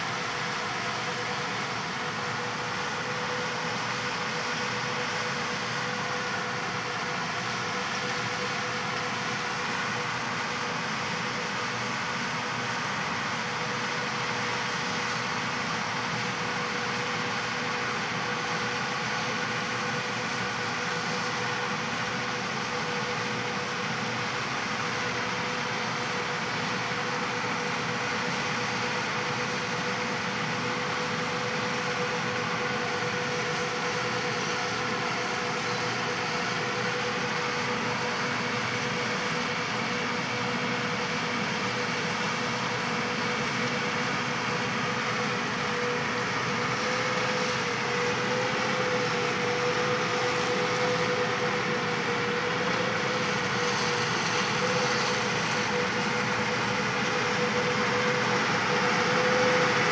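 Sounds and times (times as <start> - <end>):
constant mechanical whine: 0.0 - 59.9
combine machinery running: 14.1 - 59.9.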